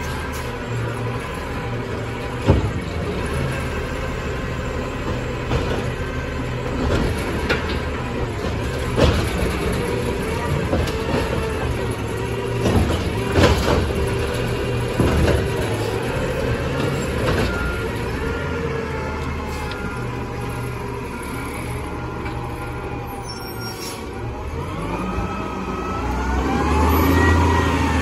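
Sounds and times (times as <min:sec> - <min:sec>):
sharp knocks and clatters: 0:05.0 - 0:16.0.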